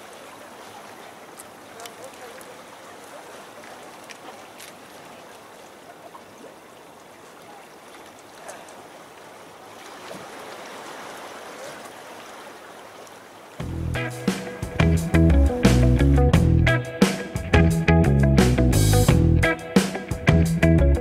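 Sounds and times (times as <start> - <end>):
water washing against rocks: 0.0 - 13.3.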